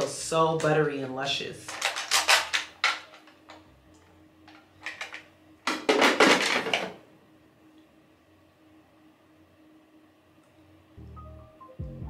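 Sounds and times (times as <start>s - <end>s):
small hard items clattering: 1.7s - 3.4s, 4.8s - 7.0s.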